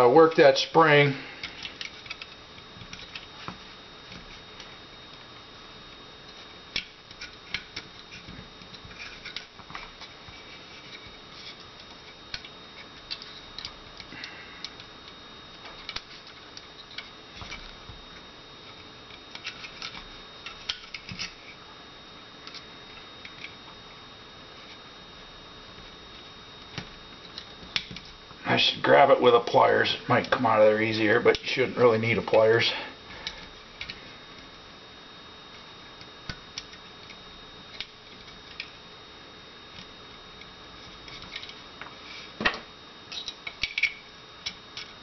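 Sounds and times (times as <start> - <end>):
faint steady hum: 0.0 - 45.0
small metal clicks and scrapes: 1.4 - 4.7, 6.3 - 14.9, 18.7 - 21.6, 43.1 - 45.0.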